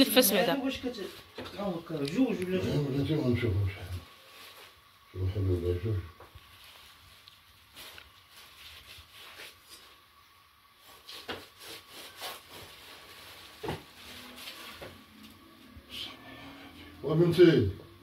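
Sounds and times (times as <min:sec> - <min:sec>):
plastic sheeting rustling: 0:04.0 - 0:05.0, 0:06.4 - 0:10.1, 0:10.7 - 0:15.2.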